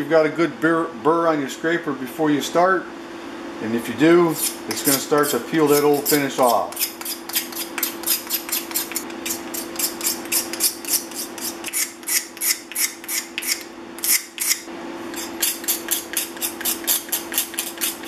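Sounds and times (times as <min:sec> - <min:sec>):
card scraper scraping wood: 0:04.4 - 0:18.0.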